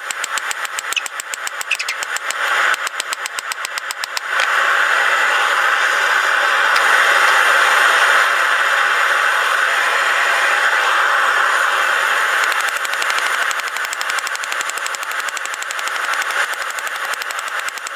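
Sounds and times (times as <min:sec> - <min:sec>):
forge burner hissing: 0:01.9 - 0:17.9.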